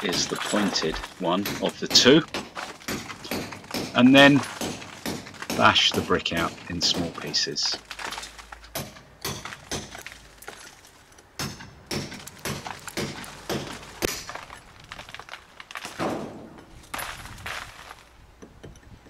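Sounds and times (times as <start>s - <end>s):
hammer striking chisel: 0.0s - 7.6s, 8.7s - 10.1s, 11.4s - 14.4s.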